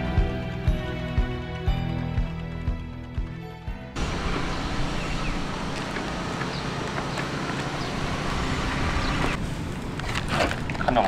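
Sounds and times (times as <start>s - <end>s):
wind: 0.0s - 11.0s
distant road traffic: 4.0s - 11.0s.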